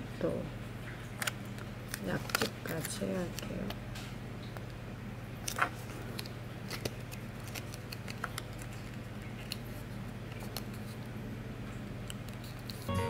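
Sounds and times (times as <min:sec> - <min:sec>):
foil paper crinkling: 0:01.9 - 0:03.7, 0:05.4 - 0:11.2.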